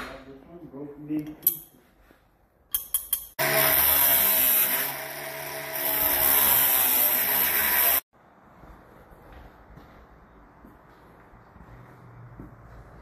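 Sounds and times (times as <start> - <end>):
angle grinder cutting wire mesh: 3.4 - 8.0.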